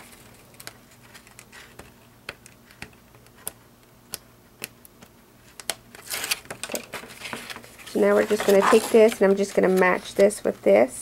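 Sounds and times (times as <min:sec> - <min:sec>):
paper crinkle: 0:06.0 - 0:10.4.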